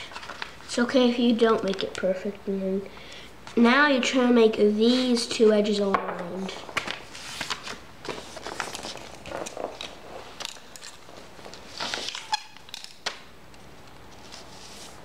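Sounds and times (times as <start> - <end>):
paper rustling on wooden floor: 5.9 - 12.4, 14.1 - 15.0.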